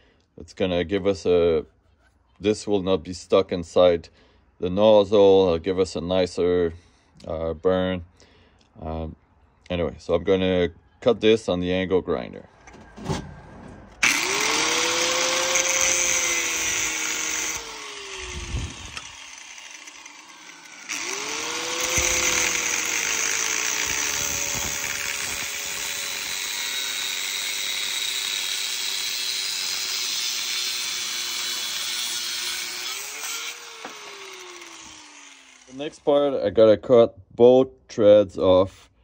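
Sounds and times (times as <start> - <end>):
angle grinder cutting metal: 14.0 - 36.1.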